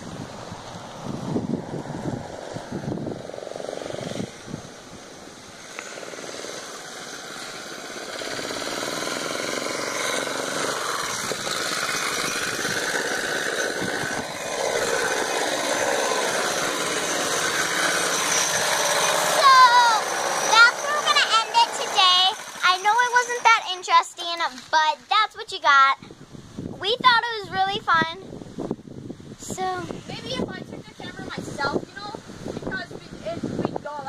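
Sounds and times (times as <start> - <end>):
go-kart engine running: 0.0 - 25.0.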